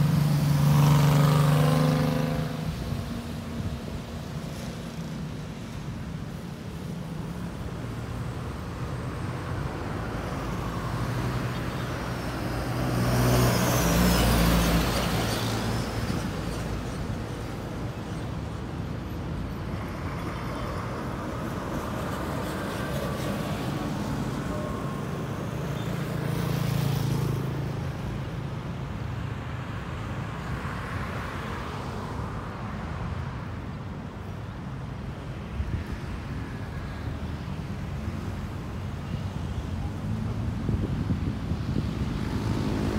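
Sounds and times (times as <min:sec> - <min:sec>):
vehicles driving past: 0:00.0 - 0:42.9.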